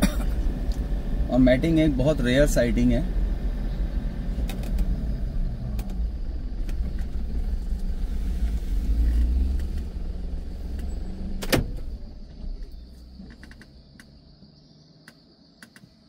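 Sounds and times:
car engine and road rumble: 0.0 - 16.0
sharp click: 15.1 - 15.9.

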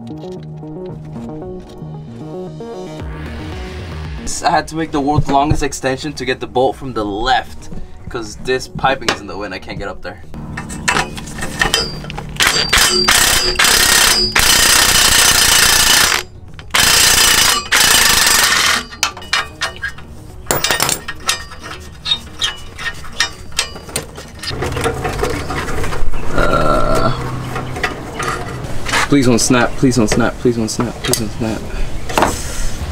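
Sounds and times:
power wrench bursts: 11.6 - 19.1
ratchet clicking: 11.6 - 20.0.

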